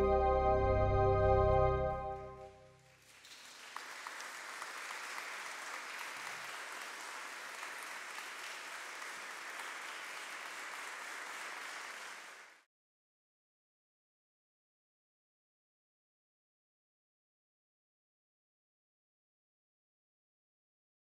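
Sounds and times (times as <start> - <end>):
audience applauding: 2.7 - 12.7.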